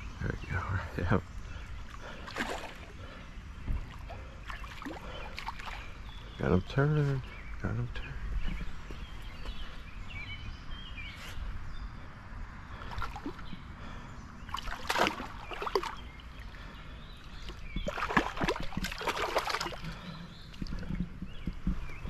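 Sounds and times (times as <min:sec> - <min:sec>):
fish thrashing and splashing water: 0:02.0 - 0:06.0, 0:12.8 - 0:13.4, 0:14.5 - 0:16.2, 0:17.3 - 0:21.9.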